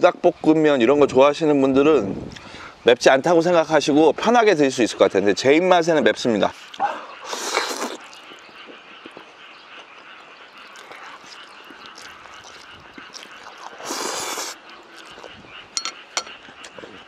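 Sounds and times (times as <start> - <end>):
person chewing noodles: 6.5 - 9.2, 9.8 - 15.4
loud slurp: 6.6 - 8.4, 10.6 - 15.4.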